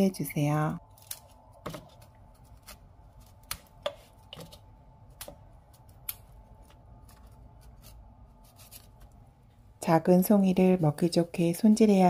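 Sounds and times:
knife cracking through broccoli stems: 0:00.9 - 0:09.1.

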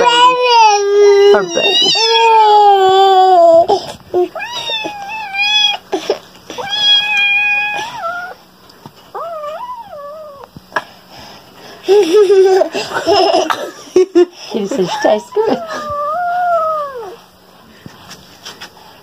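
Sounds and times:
toddler crying: 0:00.0 - 0:08.4.

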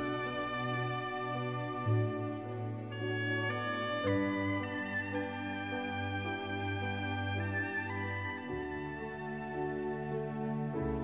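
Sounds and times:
slow instrumental music: 0:00.0 - 0:11.0.

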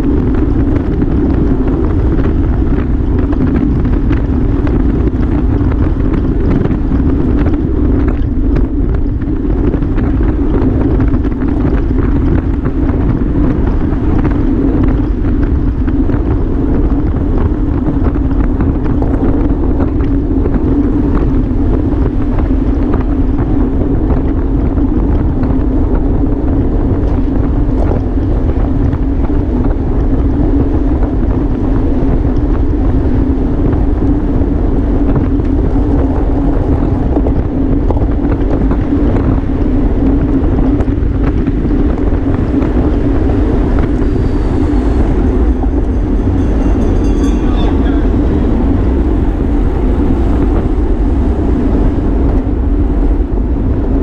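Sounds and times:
wind rushing over microphone: 0:00.0 - 0:54.0
even hum: 0:40.8 - 0:54.0.

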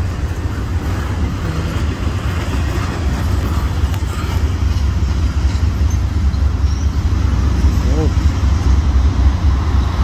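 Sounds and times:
freight train rumbling past: 0:00.0 - 0:10.0
train wheels clattering on rails: 0:00.0 - 0:10.0.

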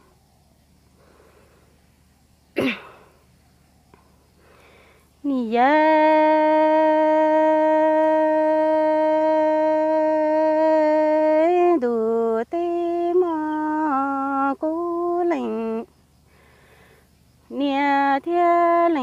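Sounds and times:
woman singing solo: 0:05.2 - 0:15.9.

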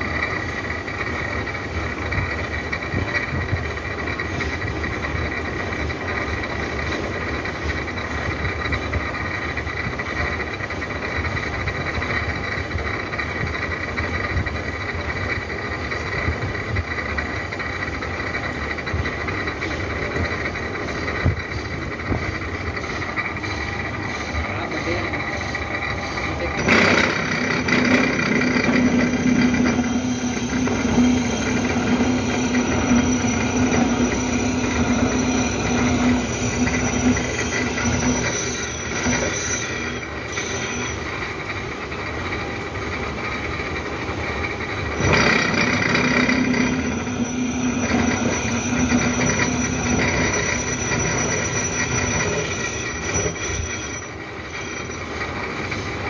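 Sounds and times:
milling machine cutting metal: 0:17.4 - 0:42.0, 0:44.5 - 0:56.0.

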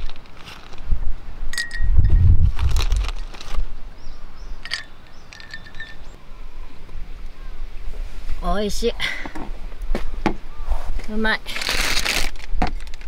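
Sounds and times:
ice cubes clinking in mug: 0:04.6 - 0:06.1.

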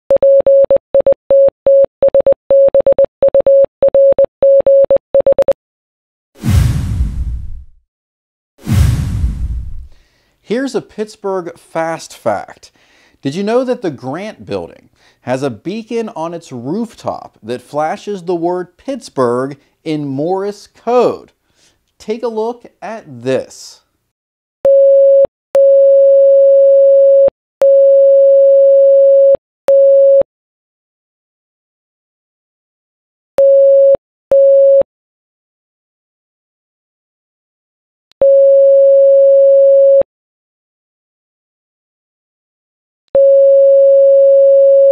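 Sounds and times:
morse code beeps: 0:00.1 - 0:05.6.

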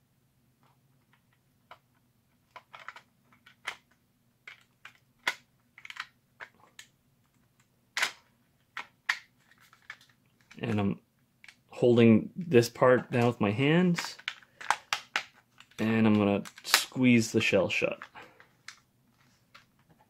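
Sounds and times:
plastic clicks and clacks: 0:00.6 - 0:10.8, 0:13.0 - 0:16.8.

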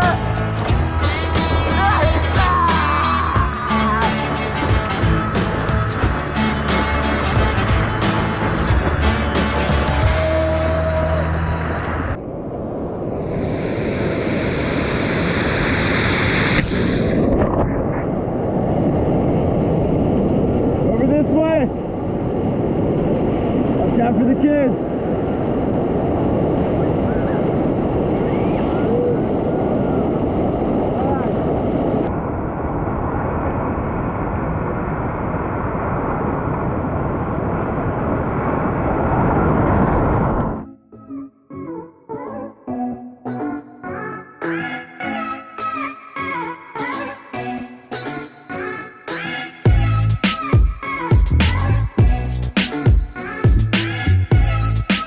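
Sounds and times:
surf rushing: 0:00.0 - 0:40.6
wind buffeting microphone: 0:00.0 - 0:40.6.

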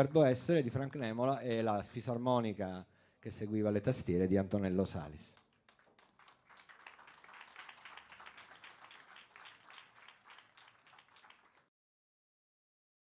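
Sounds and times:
faint applause: 0:05.7 - 0:11.7.

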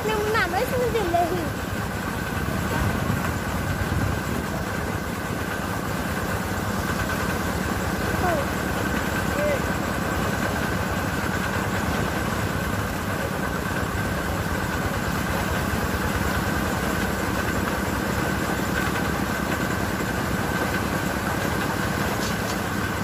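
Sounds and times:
engine running: 0:00.0 - 0:23.0.

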